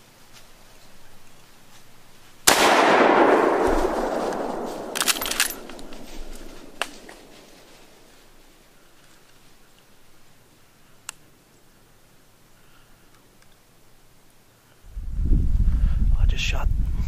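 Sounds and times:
rifle shot with echo: 2.4s - 8.0s
sharp clicks: 4.2s - 7.3s.

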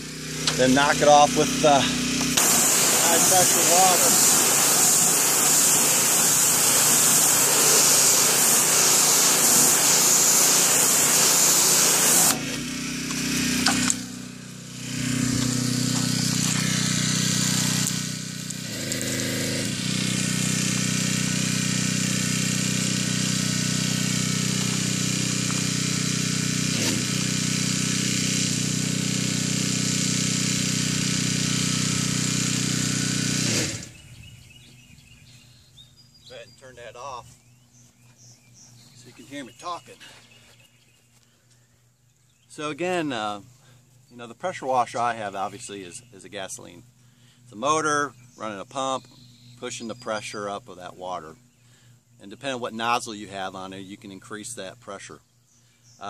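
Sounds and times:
water jet spraying siding: 0.0s - 34.8s, 38.2s - 40.2s
pressure washer engine running: 0.0s - 35.2s.

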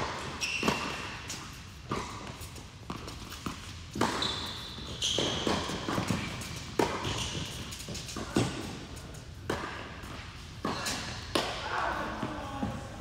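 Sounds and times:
sneakers squeaking on court: 0.0s - 11.2s
racket hitting tennis ball: 0.0s - 11.7s
tennis ball bouncing: 0.6s - 8.8s, 9.4s - 11.6s.

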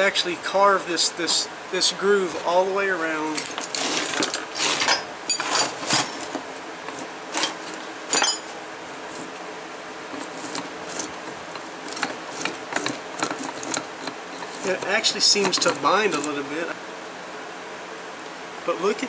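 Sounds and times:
metal gears clinking and knocking: 3.4s - 6.4s, 7.4s - 8.6s, 10.2s - 16.4s.

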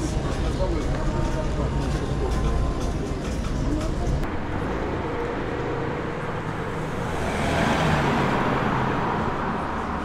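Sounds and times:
rumble of traffic: 0.0s - 10.0s
vehicle passing close: 4.3s - 10.0s.

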